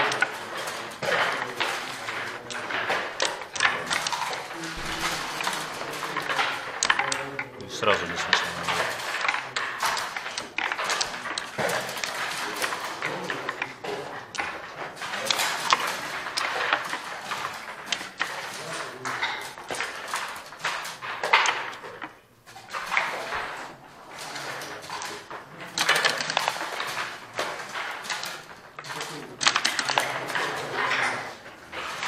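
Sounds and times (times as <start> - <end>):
voices talking: 0.0 - 9.4
game pieces and dice clacking: 0.0 - 32.0.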